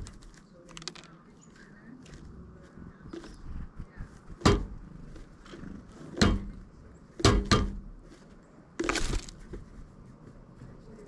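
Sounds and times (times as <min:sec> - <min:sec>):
woodpecker knocking on wood: 0:02.9 - 0:03.5, 0:04.3 - 0:07.9.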